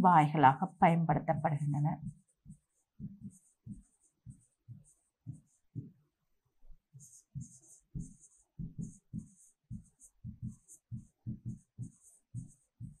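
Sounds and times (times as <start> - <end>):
pen scratching while writing: 2.0 - 5.9, 6.9 - 13.0.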